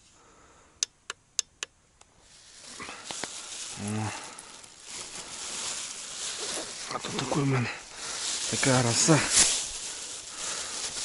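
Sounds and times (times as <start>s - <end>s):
plastic bag rustling: 2.2s - 11.0s.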